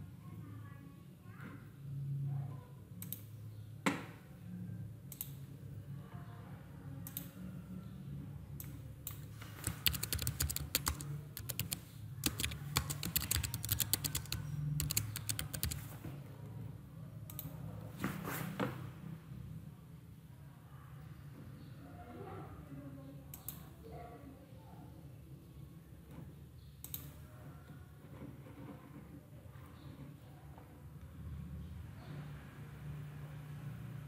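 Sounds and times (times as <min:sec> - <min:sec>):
computer mouse clicks: 0:03.0 - 0:03.3, 0:05.1 - 0:05.4, 0:07.0 - 0:07.4, 0:08.6 - 0:15.8, 0:17.3 - 0:17.6, 0:26.8 - 0:27.2
typing on computer keyboard: 0:09.1 - 0:15.9.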